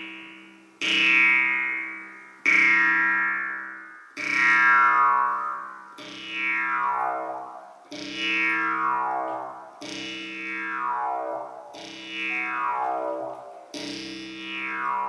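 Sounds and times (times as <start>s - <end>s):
jew's harp twanging: 4.2s - 15.0s.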